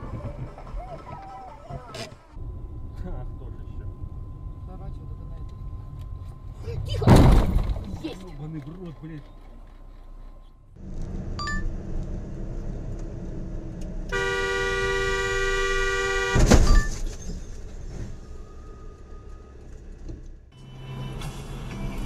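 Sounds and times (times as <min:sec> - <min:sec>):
road noise: 0:00.0 - 0:22.0
car collision bang: 0:07.0 - 0:08.0, 0:16.2 - 0:17.1
car horn: 0:14.1 - 0:16.9.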